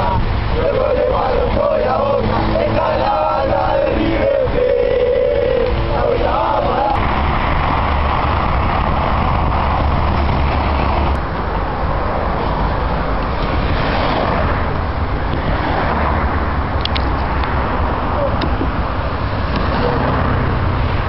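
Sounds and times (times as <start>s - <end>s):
bus engine rumble: 0.0s - 21.0s
road and traffic noise: 0.0s - 21.0s.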